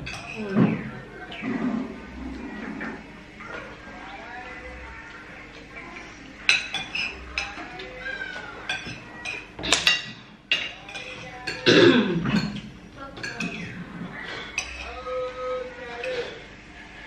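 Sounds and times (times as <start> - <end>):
spoons clinking on ceramic plates: 0.0 - 0.5, 6.0 - 13.8, 14.4 - 15.1.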